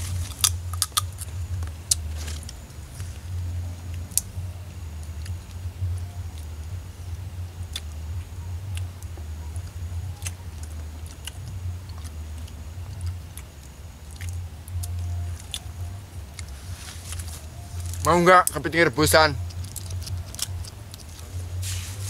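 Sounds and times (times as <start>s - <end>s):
chewing: 0.0s - 18.1s, 19.4s - 21.6s
steady low hum: 0.0s - 22.0s
crab shell cracking: 0.1s - 2.6s, 19.4s - 21.2s.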